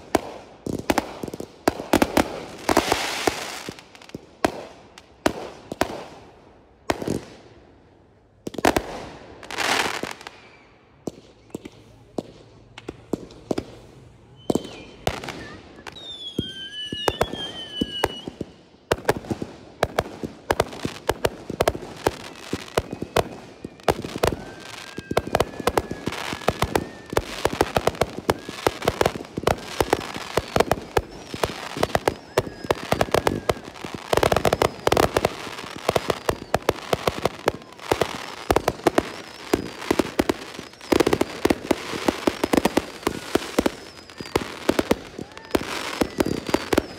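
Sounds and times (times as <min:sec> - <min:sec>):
firework bangs: 0:08.4 - 0:46.9
falling firework whistles: 0:09.7 - 0:11.9, 0:13.4 - 0:18.6, 0:20.8 - 0:46.9.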